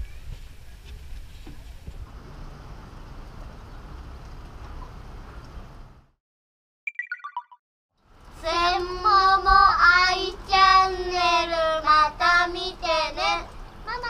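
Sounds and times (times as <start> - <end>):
children singing: 8.4 - 14.0.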